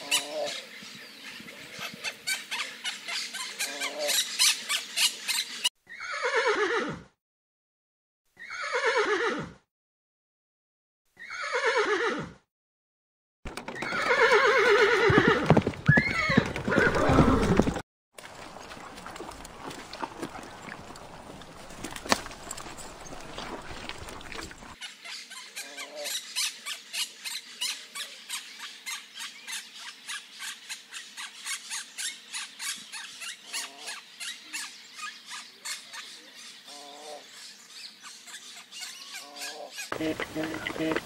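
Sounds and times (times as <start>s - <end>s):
small birds chirping: 0.0s - 5.7s, 19.6s - 41.0s.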